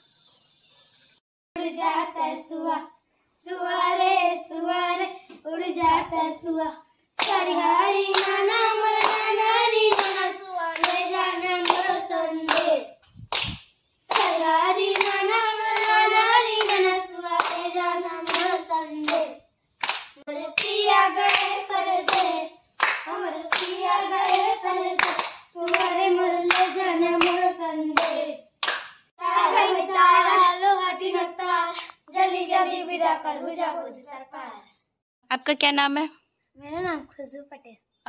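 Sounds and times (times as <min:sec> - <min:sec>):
girls singing folk song: 0:01.6 - 0:13.0, 0:14.1 - 0:19.5, 0:20.2 - 0:28.6, 0:29.2 - 0:34.1
rhythmic hand clapping: 0:07.2 - 0:30.6.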